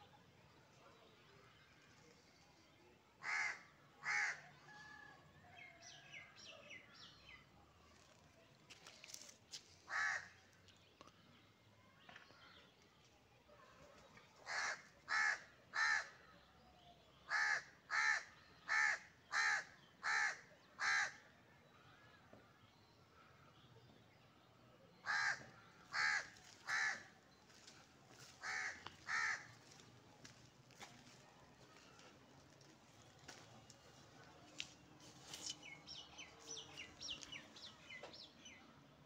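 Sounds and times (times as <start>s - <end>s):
crow cawing: 3.2s - 4.4s, 9.9s - 10.3s, 14.5s - 16.1s, 17.3s - 21.2s, 25.0s - 27.1s, 28.2s - 29.6s.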